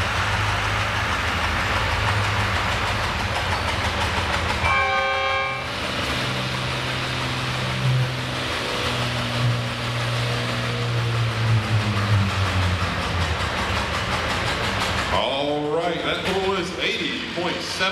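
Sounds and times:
tractor engines running: 0:00.0 - 0:17.9
horn blast: 0:04.6 - 0:05.7.

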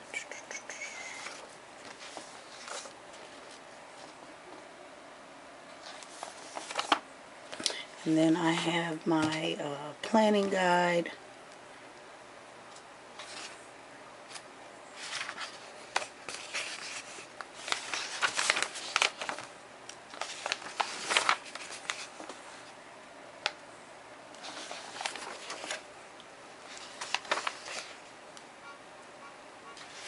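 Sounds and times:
pages turning and rustling: 0:01.2 - 0:04.3, 0:05.8 - 0:09.5, 0:13.2 - 0:13.6, 0:15.0 - 0:22.7, 0:24.4 - 0:25.9, 0:26.6 - 0:28.1.

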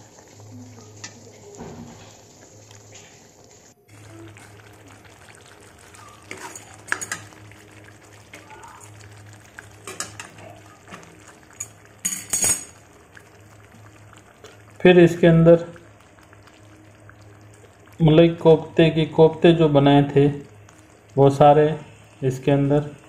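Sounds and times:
metal ladle stirring in pan: 0:03.9 - 0:07.4, 0:09.8 - 0:12.7.

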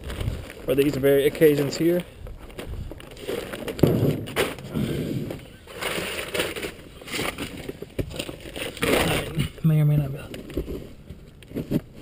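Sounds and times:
plastic tarp rustling: 0:00.0 - 0:09.6.

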